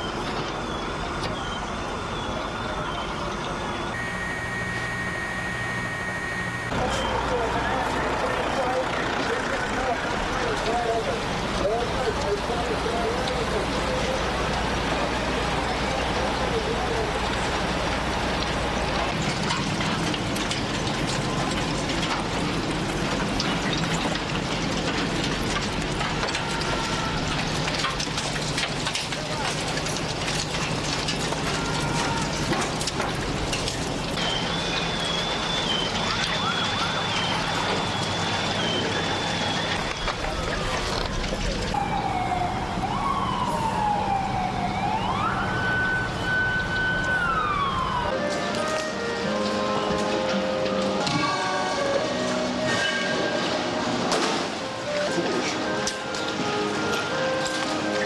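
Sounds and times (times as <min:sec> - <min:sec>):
siren wailing: 0:00.6 - 0:07.4, 0:34.2 - 0:53.8
faint thin tone: 0:04.0 - 0:06.8.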